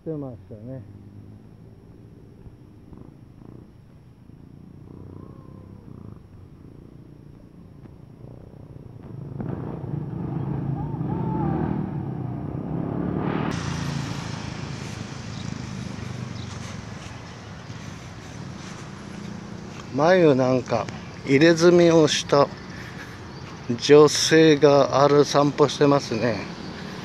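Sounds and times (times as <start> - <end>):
motor scooter passing: 0.4 - 27.0
broad rushing noise: 9.1 - 27.0.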